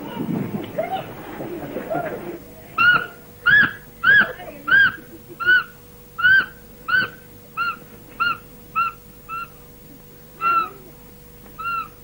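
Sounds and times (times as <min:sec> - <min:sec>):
faint steady hum: 0:00.0 - 0:12.0
animal giving short high calls: 0:02.8 - 0:09.6, 0:10.4 - 0:10.9, 0:11.6 - 0:12.0.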